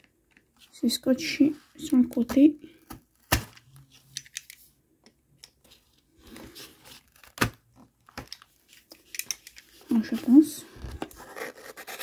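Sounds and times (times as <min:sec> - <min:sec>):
cardboard rustling and tearing: 0:06.2 - 0:07.7, 0:09.9 - 0:12.0.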